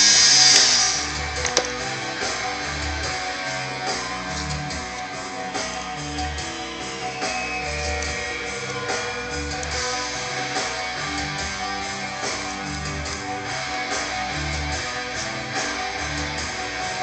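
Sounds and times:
guitar-led background music: 0:00.0 - 0:17.0
sharp click: 0:00.4 - 0:01.8.

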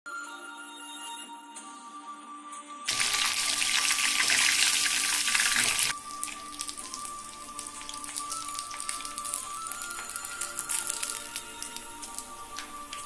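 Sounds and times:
background music: 0:00.1 - 0:13.0
prawns sizzling in hot oil: 0:02.9 - 0:13.0.

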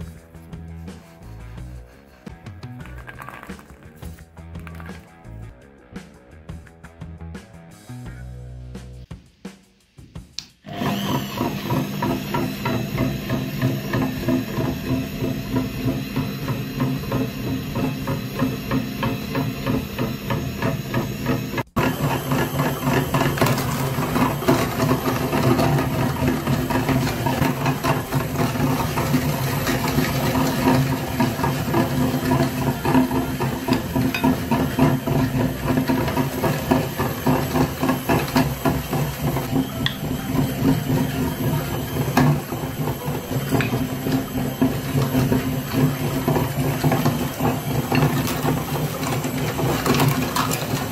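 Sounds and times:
meat grinder motor humming: 0:10.6 - 0:50.9.

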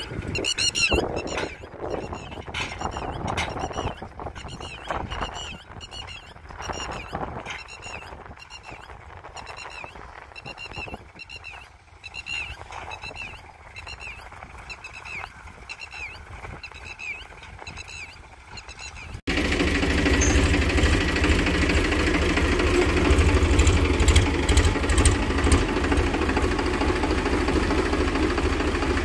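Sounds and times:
bird calling in sharp notes: 0:00.0 - 0:19.2.

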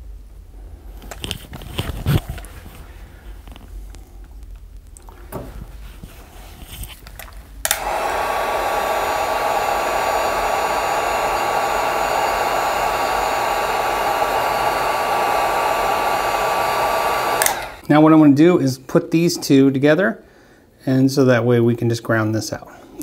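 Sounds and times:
heat gun fan whining: 0:07.1 - 0:17.9.

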